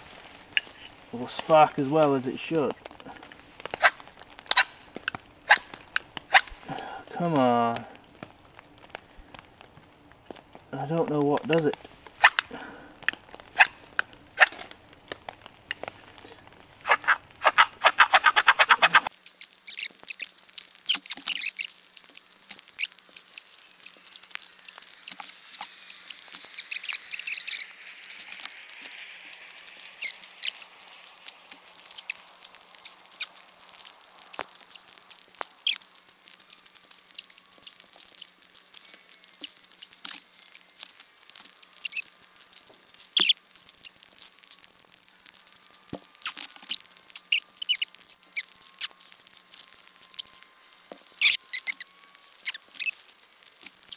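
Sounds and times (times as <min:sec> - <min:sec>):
knife scraping birch bark: 0:16.8 - 0:21.8
knife scraping ferro rod: 0:16.9 - 0:19.1.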